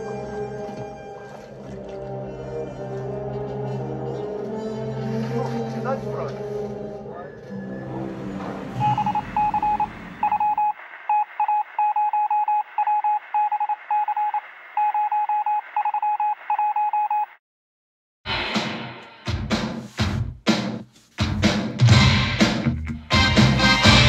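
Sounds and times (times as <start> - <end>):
electronic beep pulses: 8.8 - 17.3.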